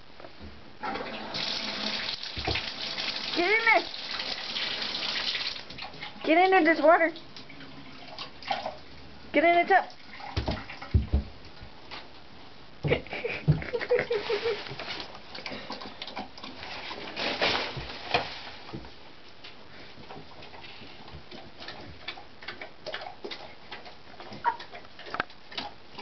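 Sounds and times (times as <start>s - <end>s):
puppy lapping water: 7.2s - 9.0s, 15.2s - 17.2s, 20.4s - 26.0s.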